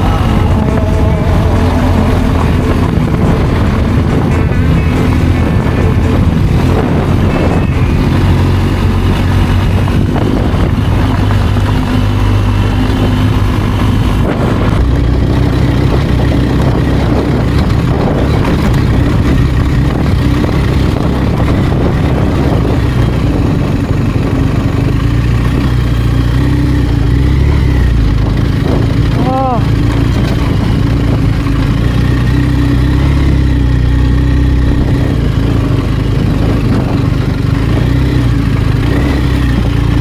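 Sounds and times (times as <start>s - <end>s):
motorcycle engine running: 0.0s - 40.0s.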